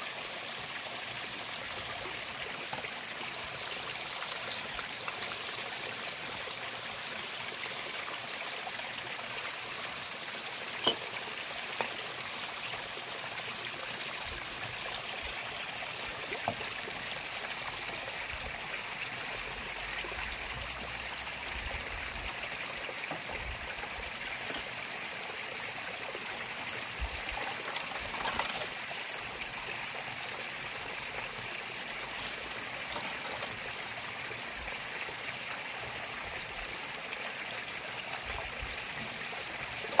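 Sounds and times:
stream running over rocks: 0.0s - 40.0s
utensils clinking: 10.8s - 11.1s, 24.4s - 24.8s, 27.5s - 28.7s
water splashing as dishes are rinsed: 10.8s - 11.2s, 27.2s - 28.8s, 32.8s - 33.6s, 39.8s - 40.0s.

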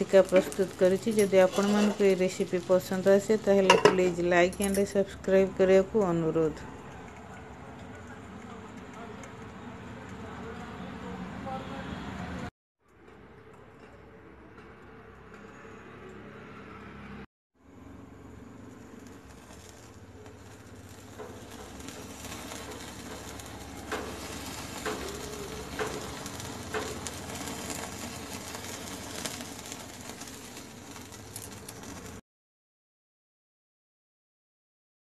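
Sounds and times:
meat sizzling over flame: 0.0s - 4.5s, 17.7s - 32.2s
gas burner hissing: 0.0s - 6.6s, 17.9s - 32.2s.

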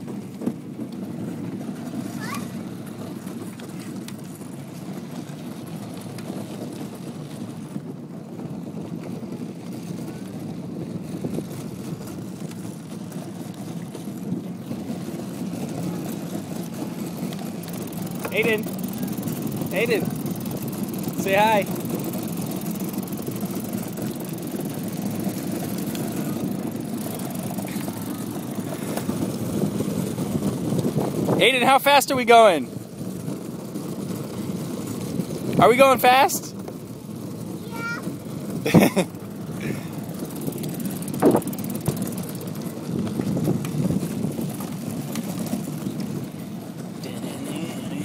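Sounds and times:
plastic wheels rumbling on asphalt: 0.0s - 48.0s.

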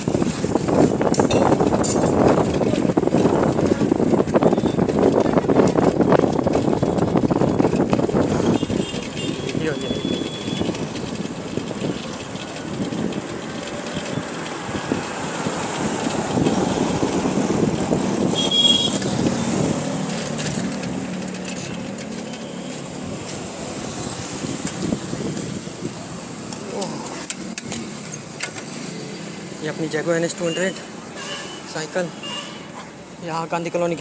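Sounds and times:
wind noise: 0.0s - 21.8s, 23.0s - 26.4s
road traffic: 0.0s - 34.0s.

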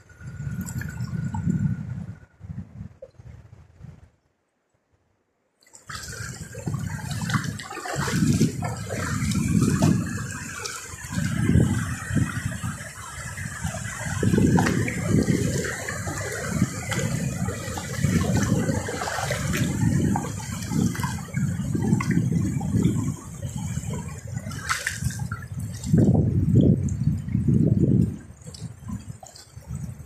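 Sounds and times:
river water rushing over stones: 5.8s - 26.8s.

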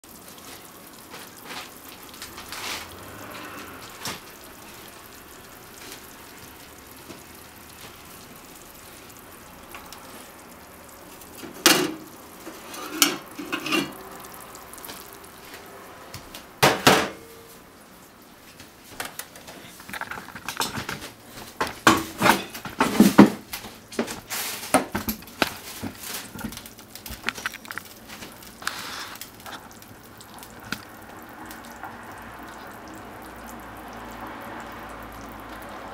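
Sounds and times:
ceramic plate clinking and clattering: 12.7s - 14.0s.

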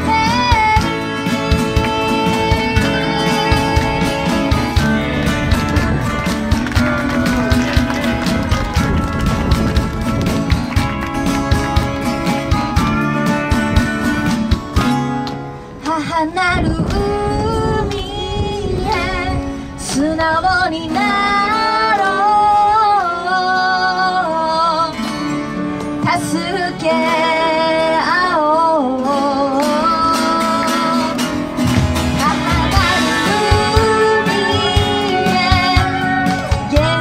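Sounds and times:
woman singing slow song: 0.0s - 5.2s, 15.8s - 25.2s, 26.0s - 31.5s, 32.1s - 37.0s
acoustic guitar: 0.0s - 37.0s.

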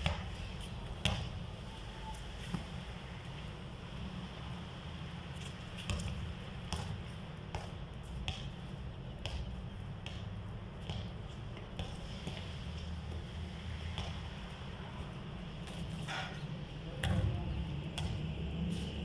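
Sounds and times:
basketball bouncing on concrete: 0.0s - 1.4s, 5.4s - 12.6s, 13.9s - 14.4s, 16.9s - 18.3s.

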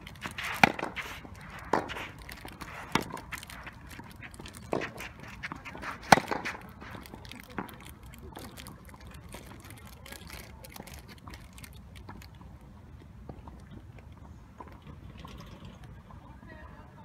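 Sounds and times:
racket hitting tennis ball: 0.0s - 7.1s
tennis ball bouncing: 0.0s - 7.8s.

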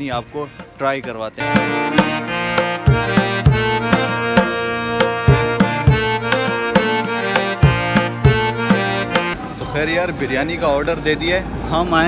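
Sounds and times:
held melodic notes: 0.0s - 9.6s
drum strikes: 0.1s - 9.4s.

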